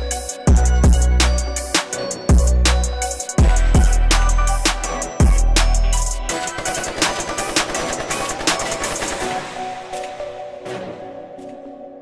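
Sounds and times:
hi-hat ticks: 0.0s - 9.2s.

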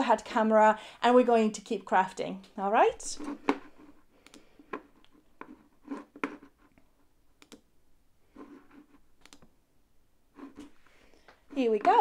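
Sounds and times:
computer keys clicking: 4.2s - 4.4s, 7.4s - 7.6s, 9.2s - 9.5s.

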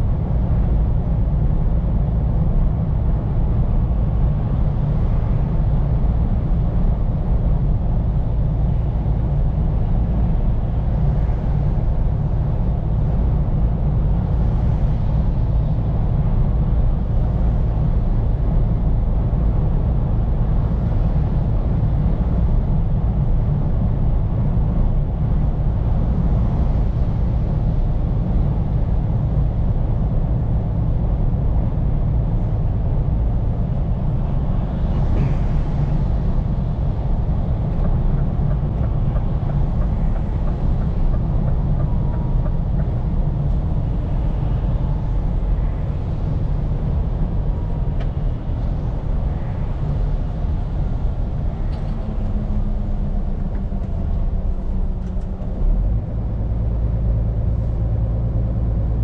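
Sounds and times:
truck engine and road noise: 0.0s - 59.0s.

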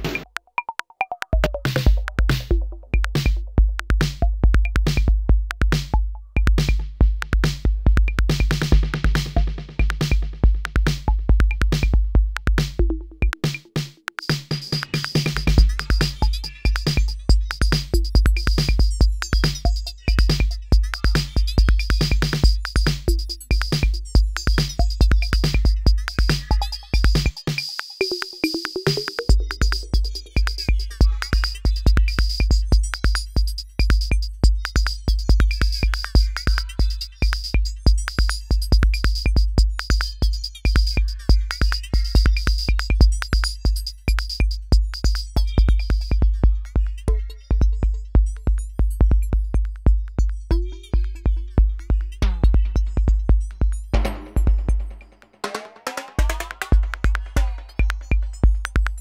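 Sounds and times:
drum machine beat: 0.0s - 59.0s.

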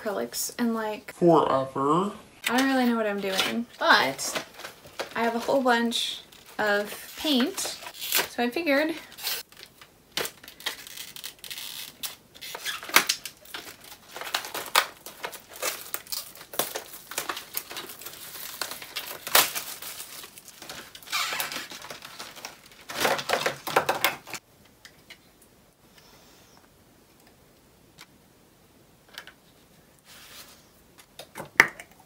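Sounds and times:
plastic packaging crinkling and tearing: 3.1s - 24.4s.

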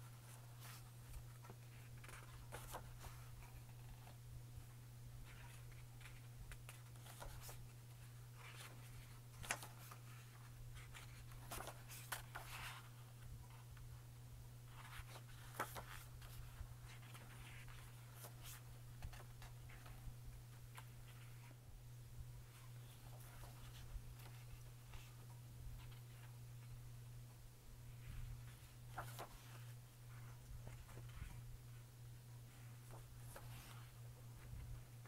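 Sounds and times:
low steady hum: 0.0s - 35.0s
book pages turning: 0.1s - 4.3s, 5.2s - 13.9s, 14.7s - 20.0s, 22.5s - 25.2s, 28.0s - 31.8s, 32.5s - 35.0s.

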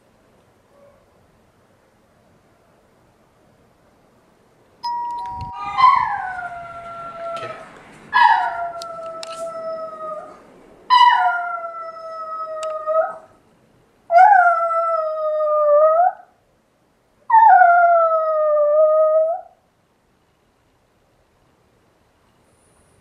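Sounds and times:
dog howling: 5.5s - 13.3s, 17.3s - 19.6s.

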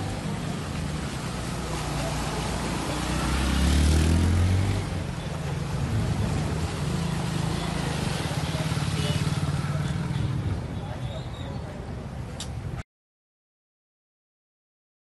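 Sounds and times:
water splashing: 0.0s - 10.0s.

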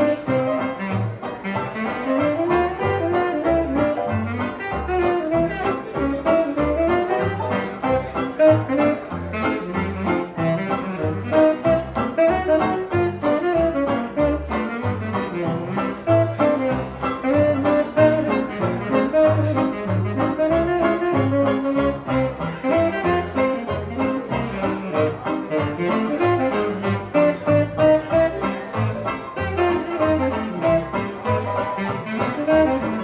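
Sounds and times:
hot jazz band playing: 0.0s - 33.0s.

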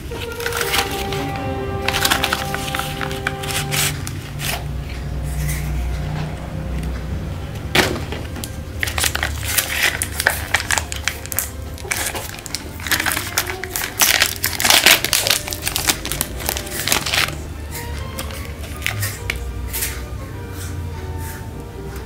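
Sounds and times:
plastic packaging crinkling: 0.0s - 4.7s, 8.2s - 19.9s.

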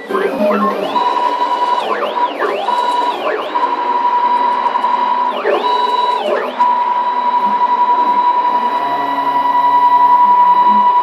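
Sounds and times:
stepper motors whining: 0.0s - 11.0s.

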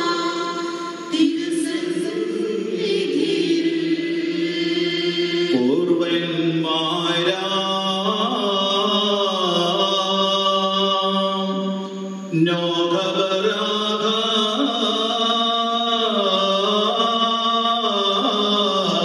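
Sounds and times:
voices chanting a slow hymn: 0.0s - 19.0s.

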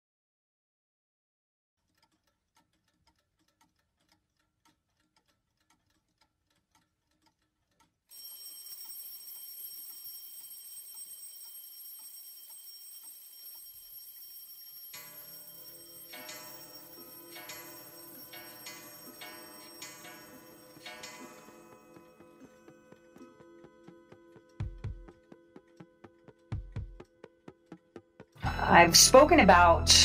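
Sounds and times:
clocks ticking faintly: 1.8s - 23.2s
alarm clocks ringing: 8.1s - 27.1s.

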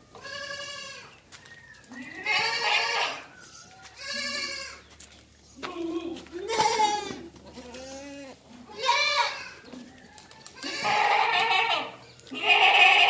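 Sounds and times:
goats bleating: 0.2s - 1.2s, 1.9s - 3.3s, 3.9s - 4.9s, 5.6s - 9.8s, 10.6s - 13.0s.

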